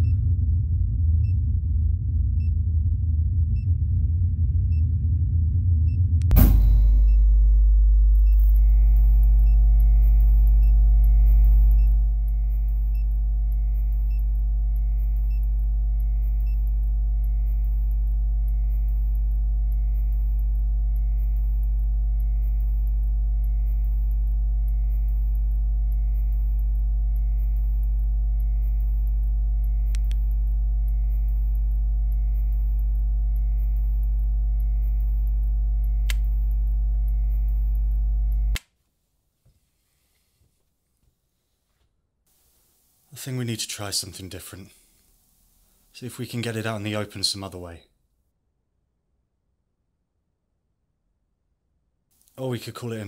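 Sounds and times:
low electrical hum: 0.0 - 41.7, 42.3 - 47.9
faint clicks: 29.8 - 30.4.

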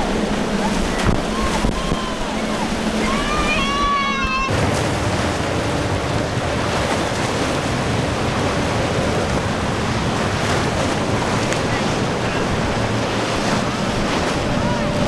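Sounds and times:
outboard motor drone: 0.0 - 15.0
rushing surf and boat wake: 0.0 - 15.0
wind buffeting microphone: 0.0 - 15.0.

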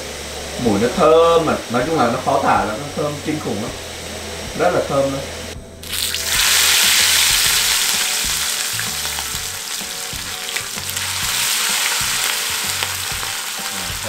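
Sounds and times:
chicken sizzling in hot oil: 5.8 - 14.0.

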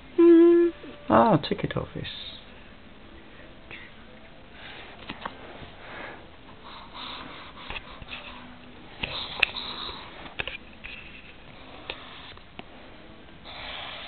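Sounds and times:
pencil scratching on paper: 6.6 - 10.2, 13.5 - 14.0.

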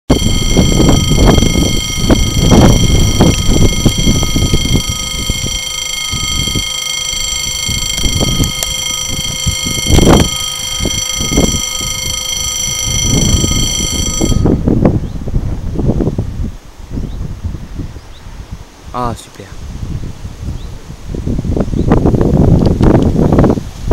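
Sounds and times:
level crossing warning bell: 0.1 - 14.8
wind buffeting microphone: 0.1 - 23.9.

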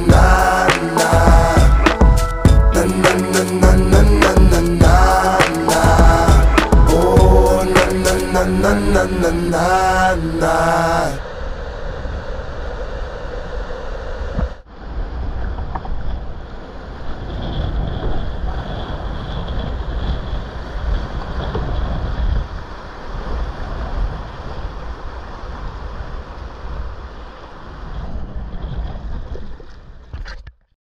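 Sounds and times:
whitewater river rushing: 0.0 - 2.0, 2.7 - 11.2
wind buffeting microphone: 11.2 - 30.2.

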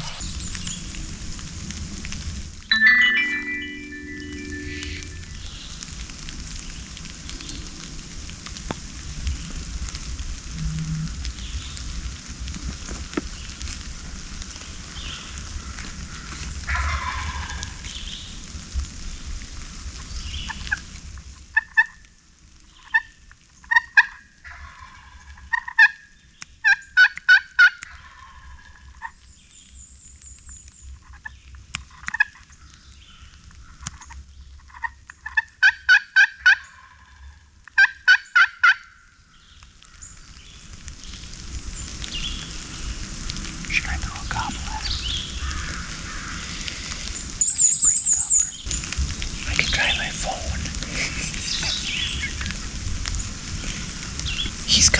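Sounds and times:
turkey yelping: 16.7 - 17.6, 26.6 - 28.5, 35.3 - 37.0, 37.8 - 38.9.

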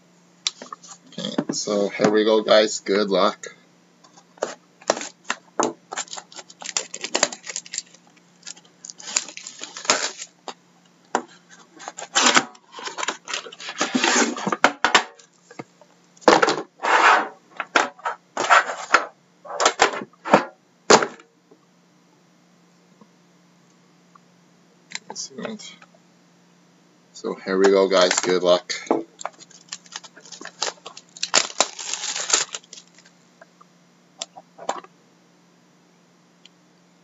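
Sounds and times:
plastic shrink-wrap crinkling: 4.8 - 10.5, 11.8 - 14.3, 27.9 - 28.5, 29.2 - 33.1.

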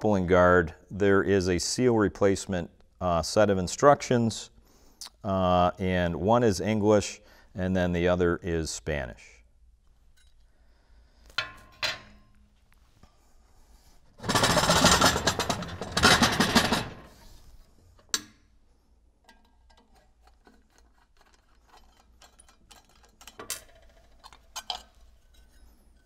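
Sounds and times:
metal-on-metal scraping and grinding: 14.2 - 17.4, 19.2 - 26.0.

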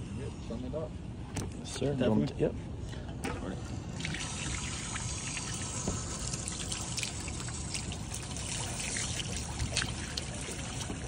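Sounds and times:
water running from hose: 3.8 - 11.0.

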